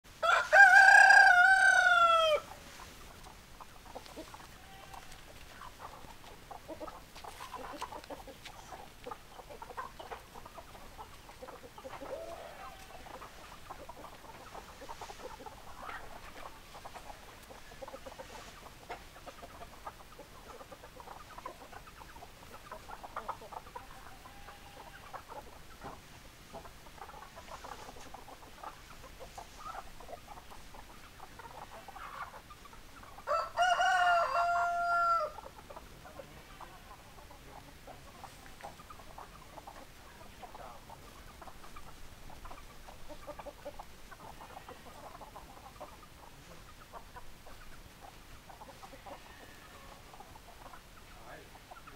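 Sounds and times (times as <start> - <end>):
chickens clucking: 0.1 - 51.9
rooster crowing: 0.2 - 2.5, 33.3 - 35.4.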